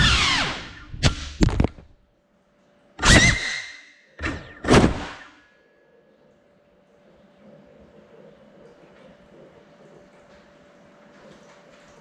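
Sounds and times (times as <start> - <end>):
drone crashing: 0.0 - 1.8.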